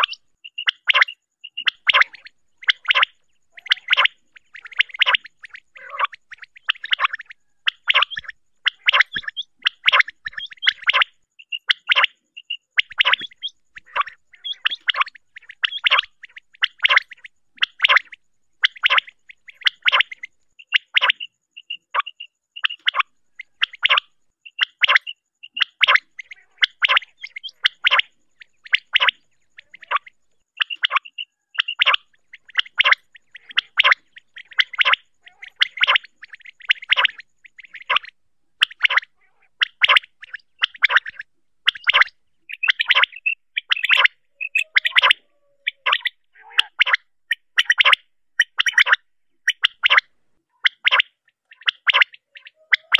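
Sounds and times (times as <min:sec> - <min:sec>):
quail calling: 0:00.0 - 0:52.9.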